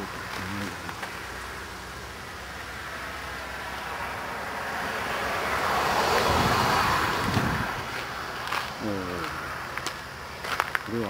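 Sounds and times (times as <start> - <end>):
car tyre noise passing: 0.0 - 11.0.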